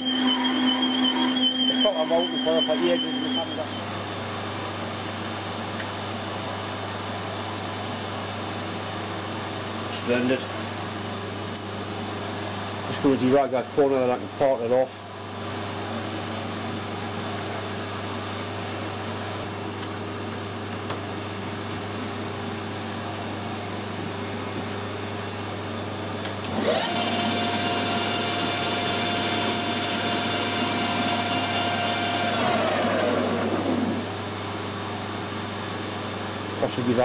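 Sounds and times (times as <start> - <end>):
lathe motor whine: 0.0 - 4.0, 26.2 - 34.5.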